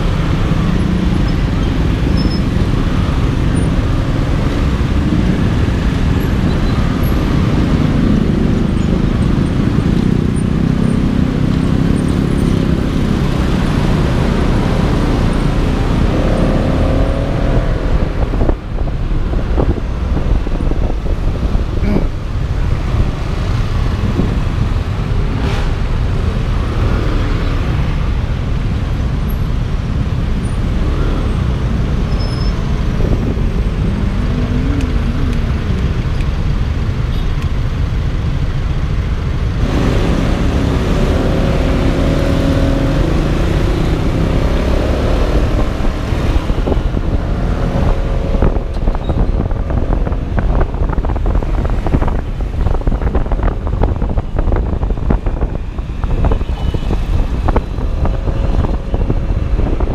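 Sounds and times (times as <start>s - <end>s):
road traffic engines rumbling: 0.0s - 59.9s
wind buffeting microphone: 12.5s - 26.9s, 32.6s - 37.0s, 39.6s - 59.9s.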